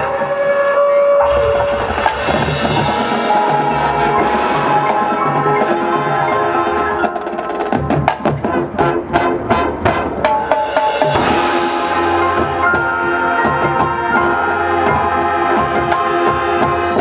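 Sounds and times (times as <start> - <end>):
marching band playing: 0.0 - 17.0
sharp percussion hits: 1.2 - 8.6, 9.9 - 14.1.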